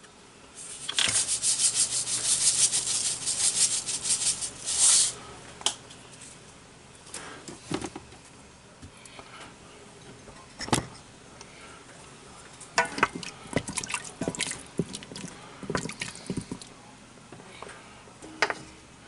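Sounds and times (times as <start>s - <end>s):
salt grinder rasping: 0.6s - 5.2s.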